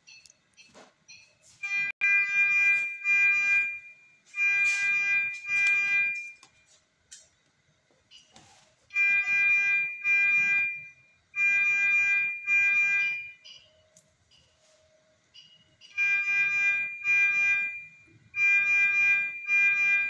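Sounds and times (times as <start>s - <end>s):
electronic alarm beeps: 0.0s - 6.5s, 8.1s - 20.0s.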